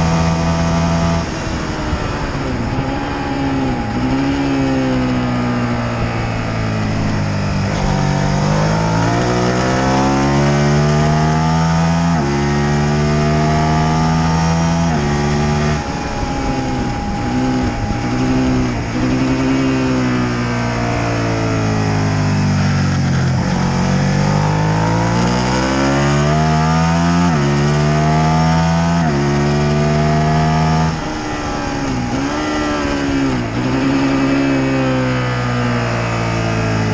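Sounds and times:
wind rush: 0.0s - 25.9s
motorcycle engine revving: 0.0s - 36.9s.

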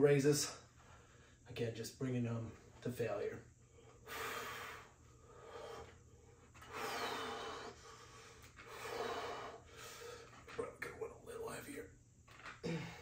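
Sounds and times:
man breathing hard: 3.6s - 10.4s.

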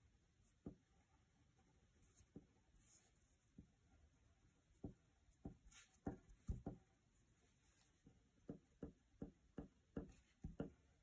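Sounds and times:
pencil tip tapping on paper: 4.8s - 6.8s, 8.0s - 10.8s.

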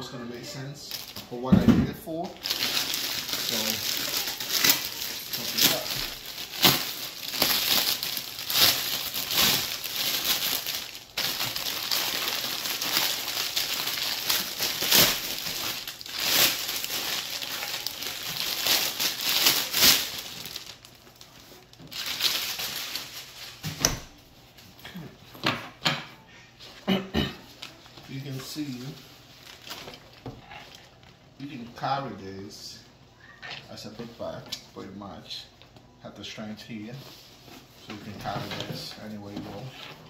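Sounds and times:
plastic wrapping crinkling: 0.8s - 24.6s, 27.5s - 32.0s.

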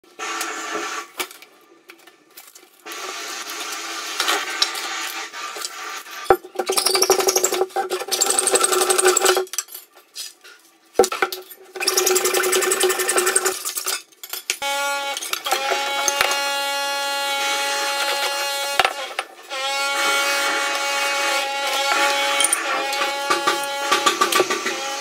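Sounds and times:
hacksaw cutting wood: 17.4s - 25.0s.

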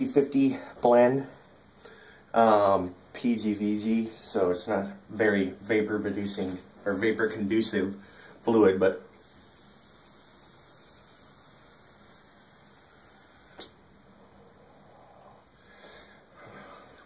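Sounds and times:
vape draw airy hiss: 9.2s - 13.8s
click: 13.6s - 13.8s
breathy exhale: 14.7s - 17.0s.

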